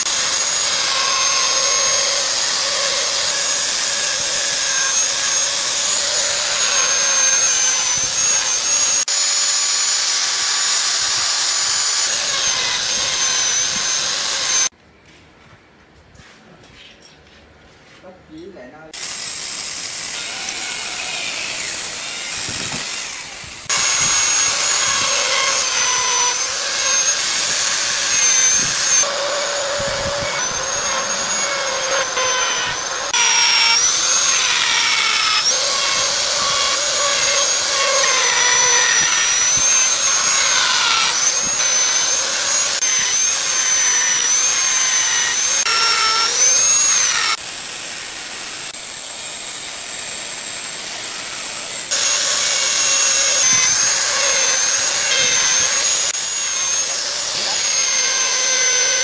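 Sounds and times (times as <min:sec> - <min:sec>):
die grinder whining: 0:00.0 - 0:14.7, 0:19.0 - 0:59.0
chainsaw cutting wood: 0:19.0 - 0:48.8, 0:49.4 - 0:59.0.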